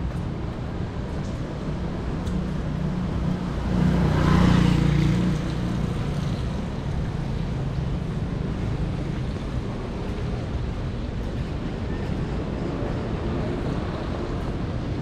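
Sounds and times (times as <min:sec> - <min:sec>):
street traffic on wet roads: 0:00.0 - 0:15.0
vehicle passing close by: 0:03.4 - 0:07.2.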